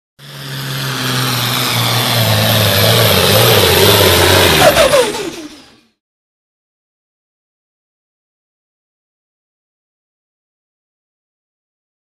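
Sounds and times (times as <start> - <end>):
tractor engine running hard: 0.2 - 6.0.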